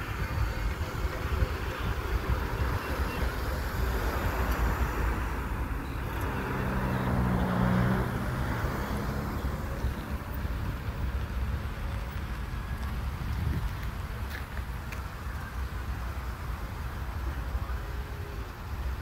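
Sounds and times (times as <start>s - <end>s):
low engine drone: 0.0s - 14.2s
engines idling: 0.0s - 19.0s.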